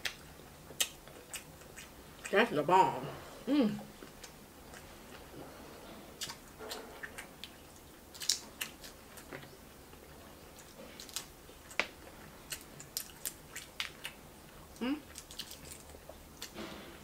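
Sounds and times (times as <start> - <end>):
chewing: 0.0 - 2.4, 3.8 - 17.0
crab shell cracking: 8.1 - 9.3, 10.6 - 14.2, 15.1 - 16.6.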